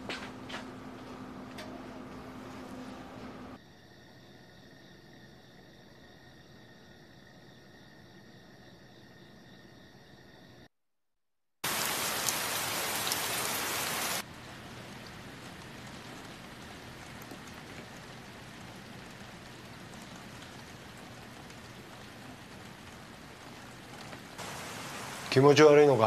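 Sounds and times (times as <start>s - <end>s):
steady rain falling: 11.6s - 26.0s.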